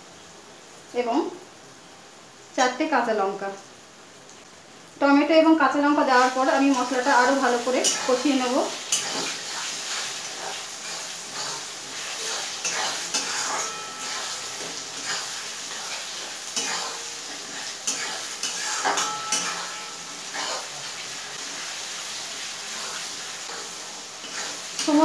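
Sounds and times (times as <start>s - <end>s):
masala sizzling in oil: 0.0s - 25.0s
metal spatula scraping pan: 6.2s - 25.0s.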